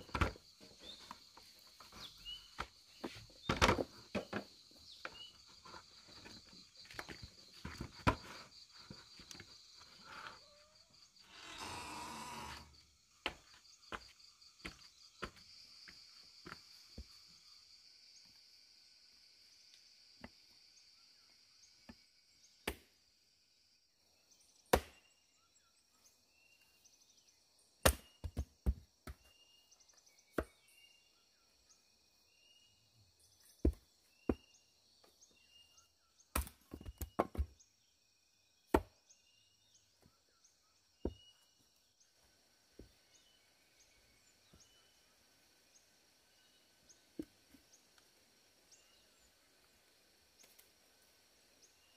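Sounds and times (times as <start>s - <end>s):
hatchet chopping wood: 22.6s - 22.9s, 24.7s - 25.0s, 27.8s - 29.3s, 36.3s - 37.5s, 38.7s - 39.0s.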